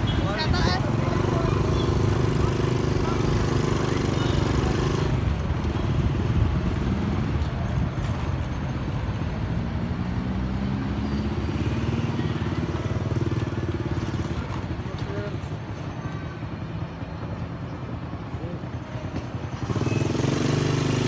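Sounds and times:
motorcycle engine passing: 0:19.6 - 0:21.0.

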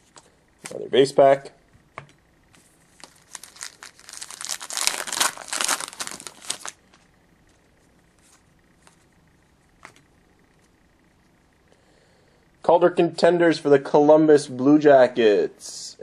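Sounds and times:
foil wrapper tearing and crinkling: 0:03.0 - 0:06.8.

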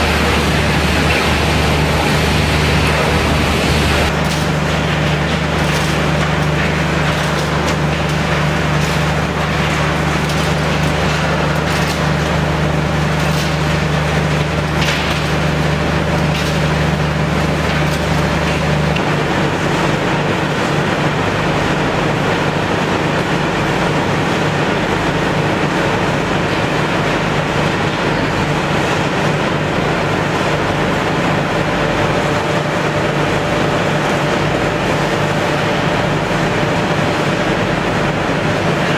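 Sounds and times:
shredder machinery din: 0:00.0 - 0:20.6.

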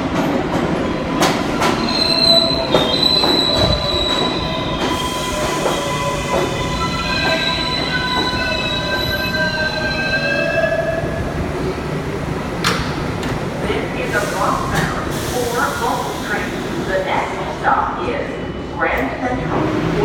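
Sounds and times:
train wheels and brakes squealing: 0:01.0 - 0:11.0.

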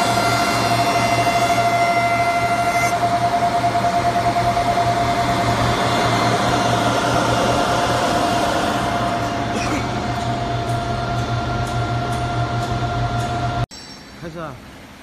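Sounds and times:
wood planer whining: 0:00.0 - 0:10.5.

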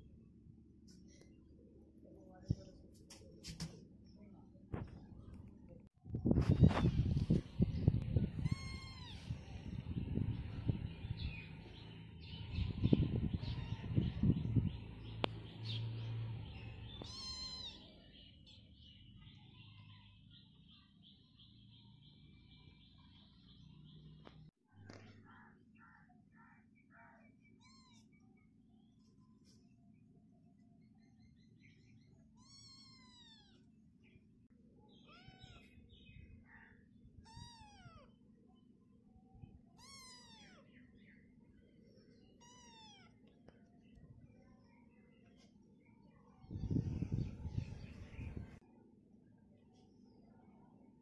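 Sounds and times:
faint bird chirps: 0:06.4 - 0:48.7
kitten mewing: 0:08.4 - 0:09.4, 0:17.0 - 0:17.8, 0:32.4 - 0:33.6, 0:35.0 - 0:35.7, 0:37.2 - 0:38.1, 0:39.8 - 0:40.7, 0:42.4 - 0:43.2.

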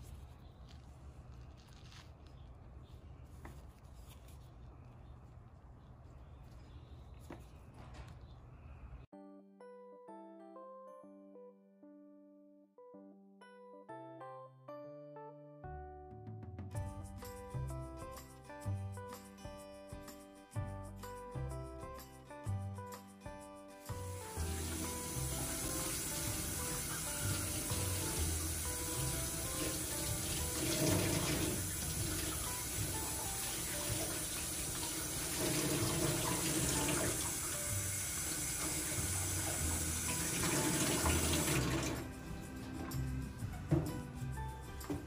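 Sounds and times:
background music: 0:09.1 - 0:45.0
faucet water splashing into sink: 0:24.2 - 0:42.1.

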